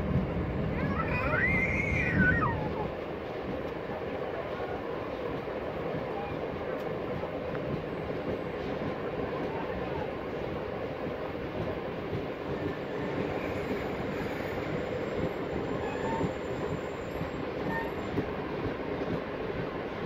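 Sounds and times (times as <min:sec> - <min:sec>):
train wheels rumbling on rails: 0:00.0 - 0:20.0
faint wheel squeals: 0:12.7 - 0:18.2.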